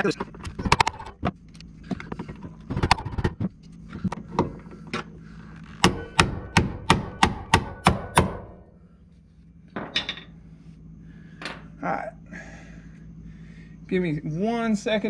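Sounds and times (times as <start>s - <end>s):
hammer striking metal tool: 5.8s - 8.5s.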